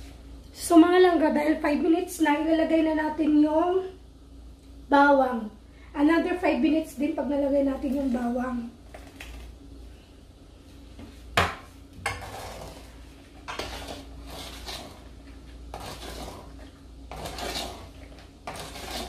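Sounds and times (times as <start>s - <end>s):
metal utensil scraping pot: 12.1s - 15.1s, 15.7s - 19.0s.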